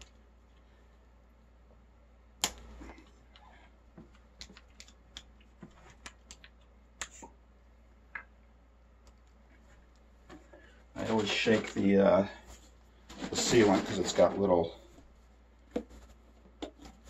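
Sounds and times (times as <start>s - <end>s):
clicks and taps of objects handled: 2.4s - 7.4s.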